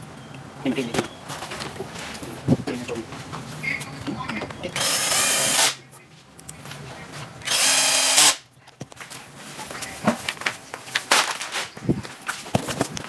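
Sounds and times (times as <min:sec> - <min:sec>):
cordless drill spinning: 0:04.8 - 0:05.7, 0:07.4 - 0:08.4.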